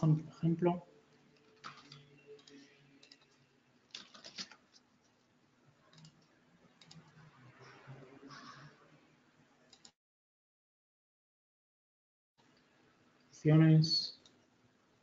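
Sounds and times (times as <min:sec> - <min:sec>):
keyboard keystrokes and clicks: 0:01.2 - 0:04.8, 0:05.8 - 0:07.2, 0:09.7 - 0:10.0.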